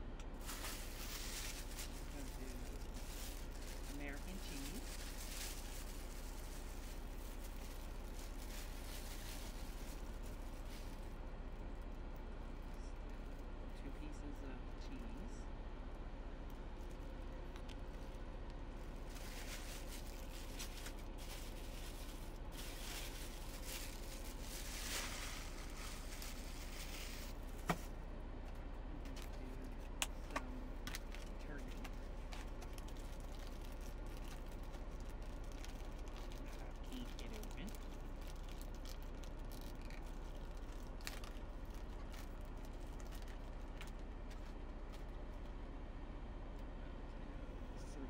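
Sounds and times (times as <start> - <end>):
low hum: 0.0 - 48.0
plastic container crackling: 0.4 - 11.0, 19.0 - 27.9, 30.9 - 44.4
plastic wrapper rustling: 0.4 - 11.2, 18.8 - 28.0, 30.1 - 45.1.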